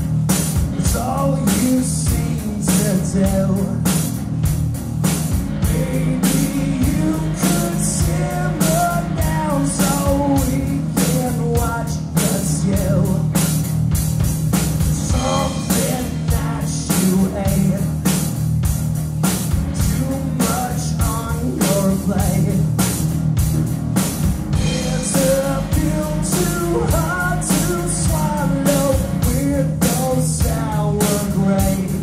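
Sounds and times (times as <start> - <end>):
bass guitar: 0.0 - 32.0
bending lead melody line: 0.0 - 32.0
drum kit steady beat: 0.0 - 32.0.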